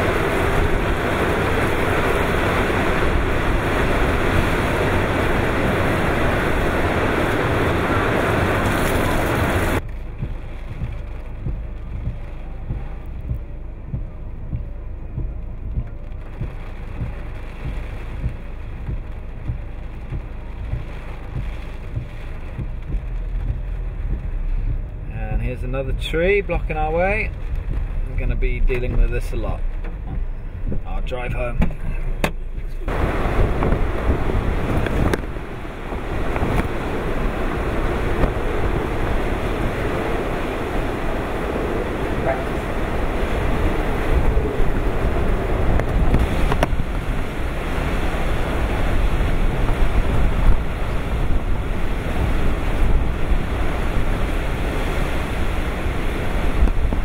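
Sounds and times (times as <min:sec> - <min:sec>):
low thumps from gusts: 0:00.0 - 0:57.0
wind and rain on a car: 0:00.0 - 0:57.0.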